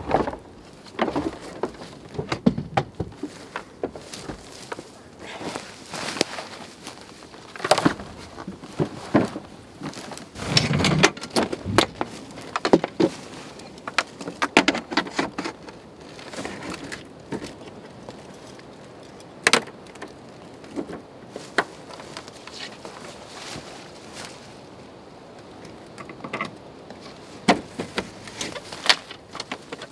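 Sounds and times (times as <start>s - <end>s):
camp gear knocks and clunks: 0.0s - 17.9s, 25.9s - 29.9s.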